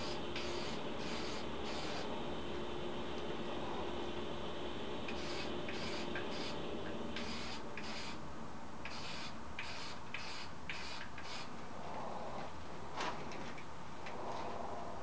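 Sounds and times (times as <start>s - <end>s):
aerosol can spraying: 0.0s - 2.1s, 5.1s - 6.6s, 7.2s - 8.2s, 8.8s - 11.5s
steady low hum: 0.0s - 15.0s.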